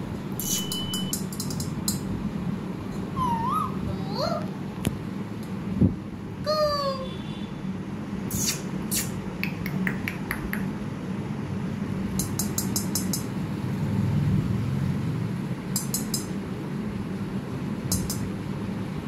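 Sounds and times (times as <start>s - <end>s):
steady low hum: 0.0s - 6.8s
beak clicking on metal bowl: 12.2s - 13.3s.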